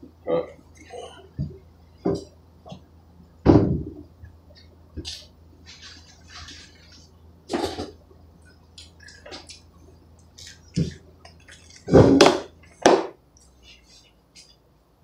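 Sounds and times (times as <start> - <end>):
refrigerator door thump: 3.4 - 4.0
items knocking and rustling: 3.4 - 4.1, 5.0 - 8.0, 10.4 - 13.2.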